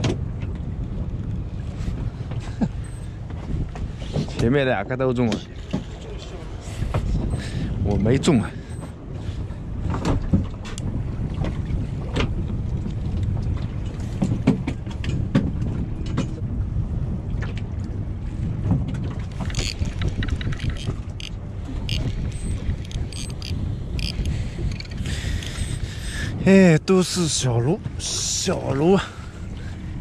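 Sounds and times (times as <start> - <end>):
low rumble of wind and boat: 0.0 - 30.0
fishing reel clicking: 19.5 - 25.6.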